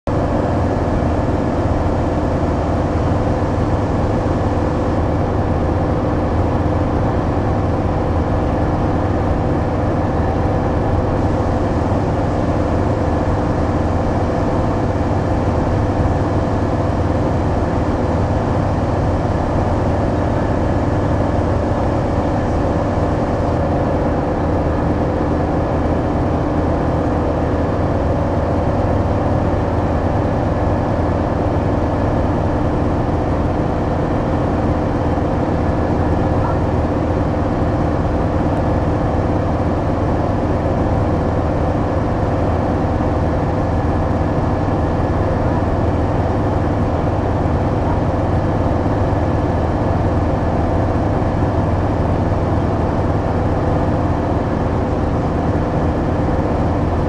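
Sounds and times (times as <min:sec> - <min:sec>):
ultralight engine and propeller: 0:00.1 - 0:57.0.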